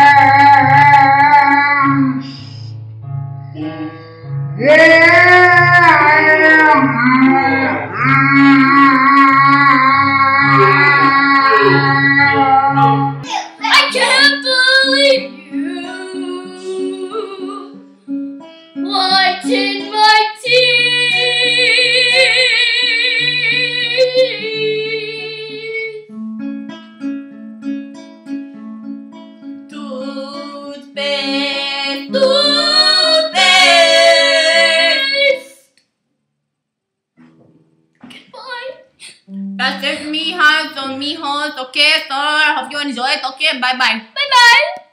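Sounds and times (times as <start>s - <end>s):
child singing with vibrato: 0.0s - 2.5s, 4.6s - 17.8s, 18.8s - 26.1s, 29.7s - 35.7s
acoustic guitar picked: 0.0s - 35.6s, 37.2s - 43.2s.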